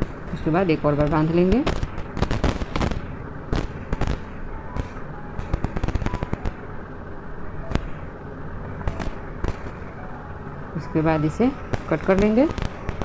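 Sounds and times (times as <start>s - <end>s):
steady low rumble: 0.0s - 13.0s
loud crack: 1.6s - 6.6s, 8.8s - 9.8s
sharp irregular cracks and clicks: 1.6s - 6.6s, 8.8s - 9.8s, 11.7s - 13.0s.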